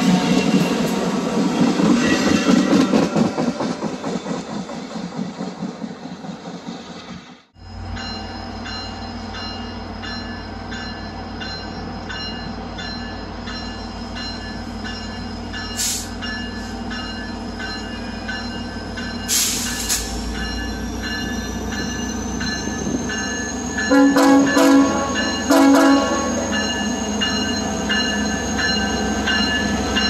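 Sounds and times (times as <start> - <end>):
train diesel hum: 0.0 - 30.0
train bell dinging: 7.6 - 30.0.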